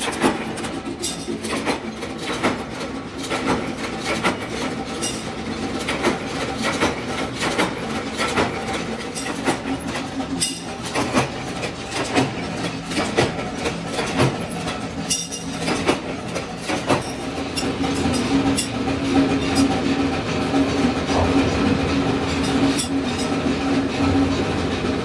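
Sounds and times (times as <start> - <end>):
motor and flywheel hum: 0.0 - 25.0
metal clanks: 3.3 - 19.8, 22.2 - 23.5.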